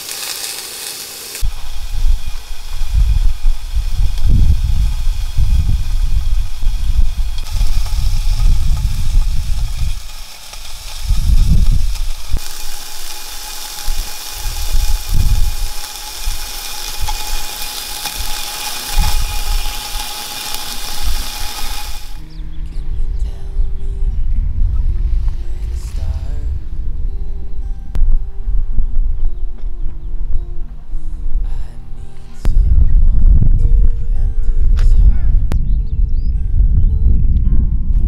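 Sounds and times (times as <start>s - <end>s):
meat sizzling in a frying pan: 0.0s - 22.2s
gusting rumble: 1.4s - 31.5s, 32.4s - 38.0s.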